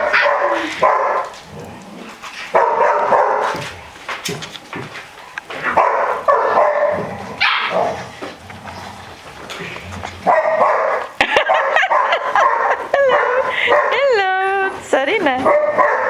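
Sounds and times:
puppies barking: 0:00.0 - 0:01.4, 0:02.5 - 0:03.7, 0:05.6 - 0:08.2, 0:10.2 - 0:14.2, 0:15.3 - 0:16.0.

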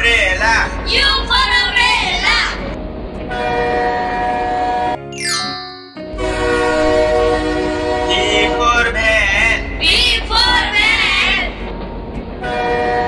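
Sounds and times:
train horn: 0:03.3 - 0:05.0, 0:06.1 - 0:09.6, 0:12.4 - 0:13.0
warbling pitched sound: 0:05.1 - 0:06.1.

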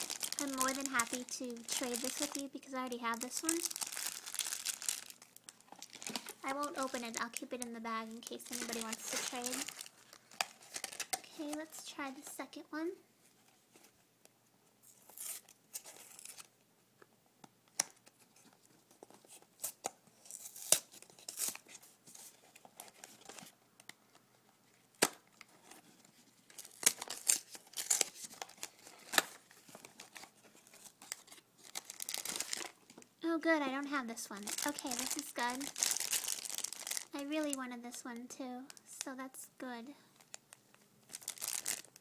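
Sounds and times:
plastic packaging tearing: 0:00.0 - 0:11.7, 0:14.8 - 0:16.5, 0:19.3 - 0:23.5, 0:26.4 - 0:32.9, 0:34.3 - 0:37.6, 0:41.1 - 0:42.0.

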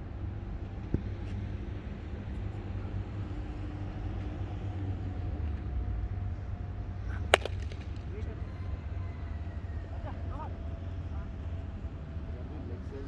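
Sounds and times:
cricket bat hitting ball: 0:07.1 - 0:08.0.

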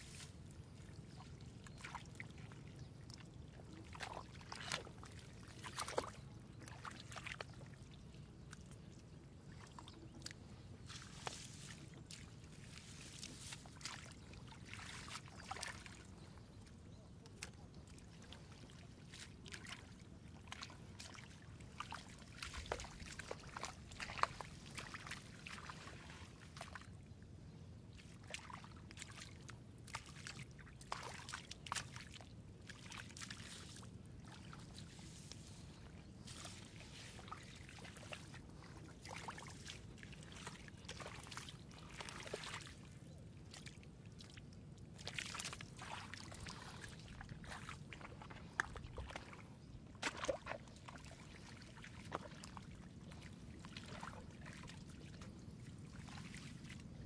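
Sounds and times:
shallow water splashing: 0:17.9 - 0:26.8, 0:28.2 - 0:42.9, 0:45.0 - 0:56.8.

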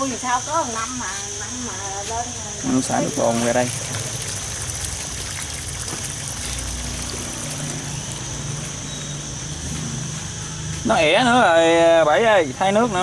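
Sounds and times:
water gushing from a pipe: 0:02.7 - 0:08.8
water splashing into a puddle: 0:02.9 - 0:08.6.

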